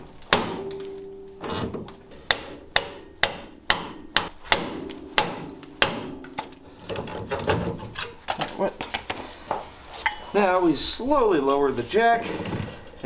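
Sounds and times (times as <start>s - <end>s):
hammer striking metal: 0.3s - 6.6s.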